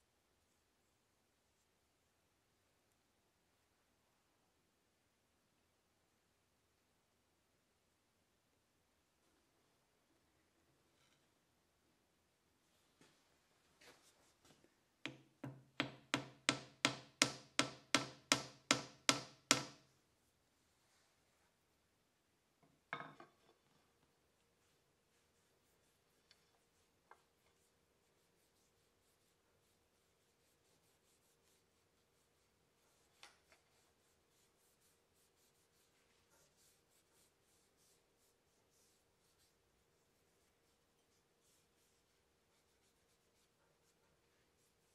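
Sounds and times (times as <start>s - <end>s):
small hammer tapping metal: 15.1s - 19.8s
cloth rag rubbing on wood: 24.4s - 44.9s.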